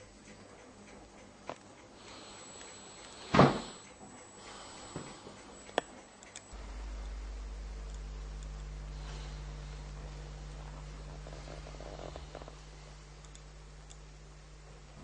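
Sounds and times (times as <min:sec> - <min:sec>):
thump: 0:03.3 - 0:03.7
low hum: 0:05.5 - 0:15.0.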